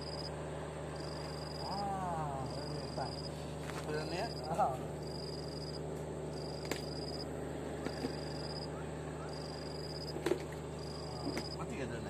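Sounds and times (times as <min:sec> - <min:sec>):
low hum: 0:00.0 - 0:11.7.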